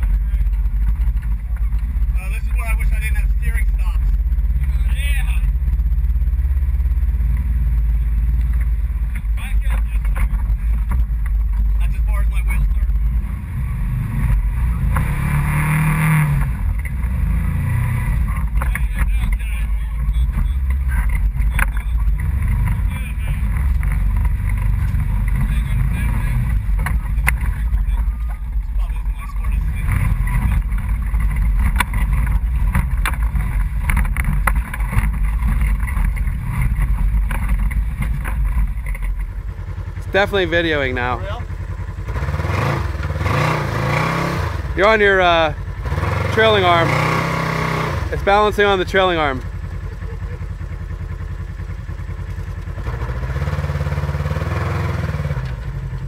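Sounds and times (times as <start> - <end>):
chassis knocks and rattles: 0.0 - 3.4, 7.3 - 12.0, 18.2 - 40.2
engine rumbling and revving: 0.0 - 56.0.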